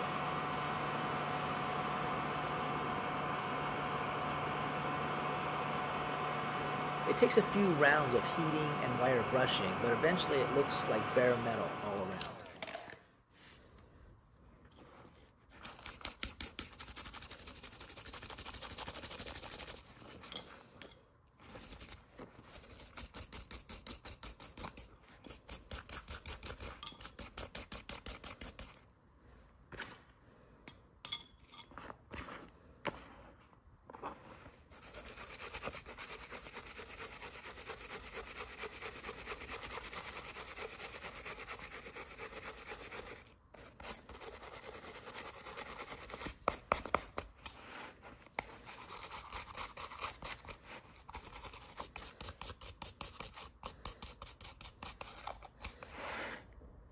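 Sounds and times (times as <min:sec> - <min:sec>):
wire brush scrubbing metal: 0:07.1 - 0:12.1, 0:34.7 - 0:47.2.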